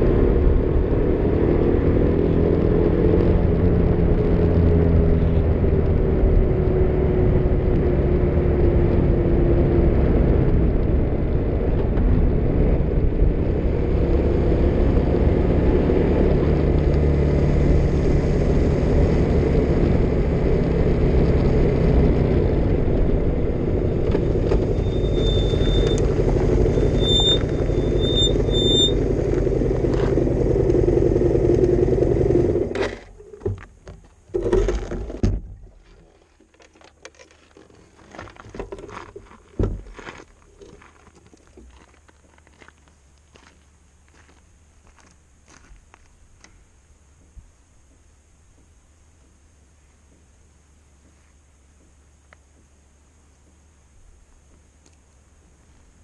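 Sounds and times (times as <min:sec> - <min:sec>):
wind and road noise: 0:00.0 - 0:56.0
motorcycle engine running: 0:12.0 - 0:33.1
short high chirps: 0:24.8 - 0:29.0.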